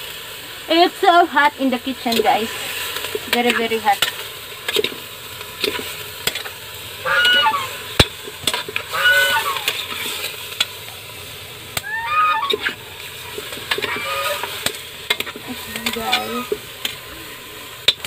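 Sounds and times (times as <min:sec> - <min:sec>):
pork sizzling in pot: 0:00.0 - 0:18.0
bird honking calls: 0:07.0 - 0:08.0, 0:08.8 - 0:10.0, 0:11.8 - 0:14.6, 0:15.4 - 0:17.5.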